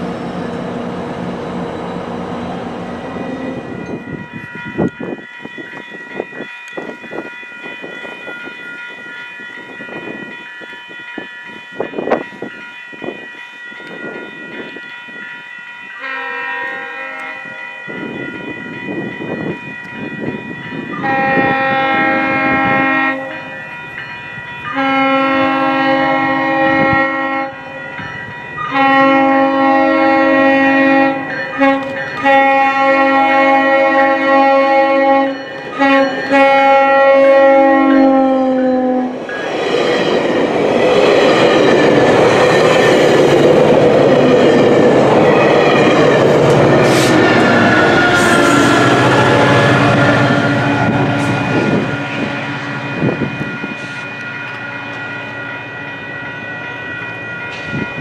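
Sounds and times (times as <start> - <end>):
train horn chord blasts: 16.0 - 17.9, 20.9 - 23.6, 24.7 - 27.7, 28.6 - 39.2, 45.7 - 54.0.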